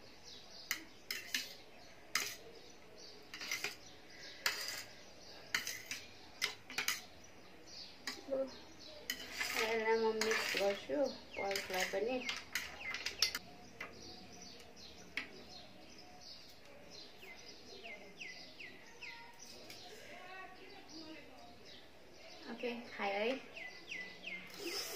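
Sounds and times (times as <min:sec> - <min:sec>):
utensils clinking on a tray: 0:00.7 - 0:02.6, 0:03.2 - 0:07.2, 0:09.0 - 0:14.0.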